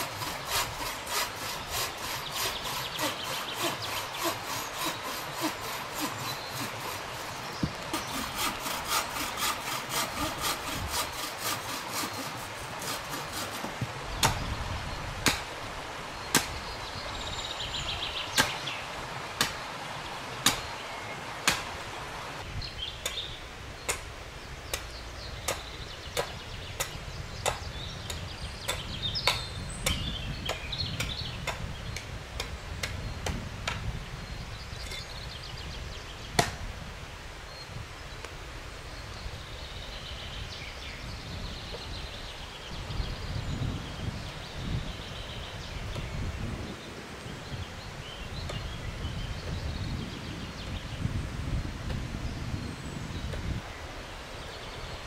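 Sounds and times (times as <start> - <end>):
blows on wood: 0.0 - 13.8
bow saw cutting branch: 0.0 - 14.5
faint birdsong: 0.0 - 36.4, 37.4 - 55.0.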